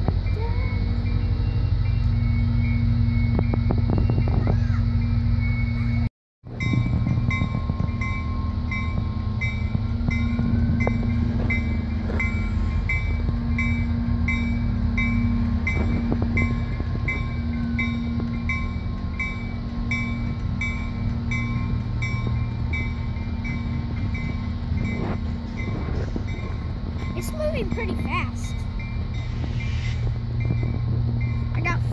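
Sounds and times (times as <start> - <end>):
locomotive bell ringing: 0.0 - 31.9
locomotive diesel engine rumbling: 0.0 - 31.9
wheels knocking on track: 6.5 - 31.9.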